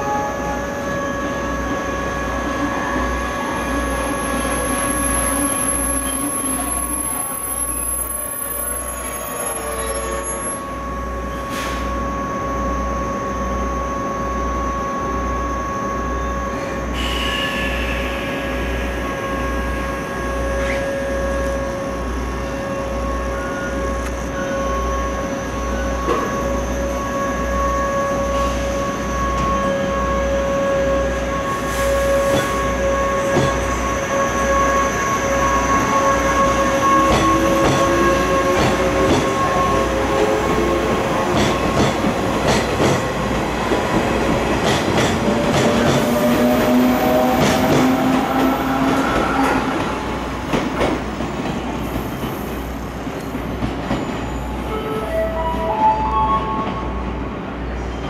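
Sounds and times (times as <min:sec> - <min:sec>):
standing trains humming: 0:00.0 - 0:58.0.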